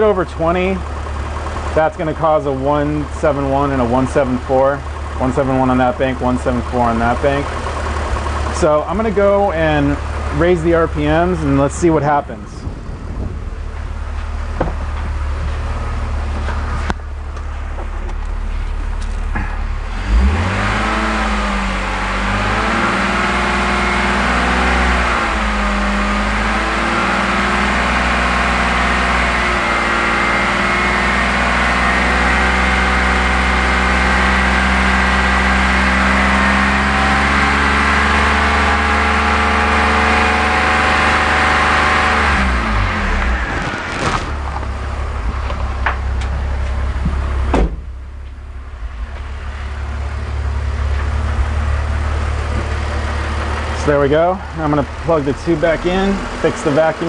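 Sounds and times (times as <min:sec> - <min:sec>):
car engine revving: 0:00.0 - 0:57.0
sharp thump: 0:47.0 - 0:49.7.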